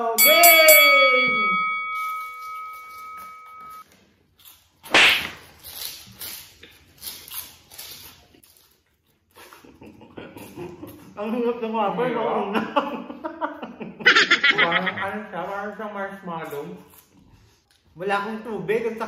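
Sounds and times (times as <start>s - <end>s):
bell-like ding: 0.0s - 3.8s.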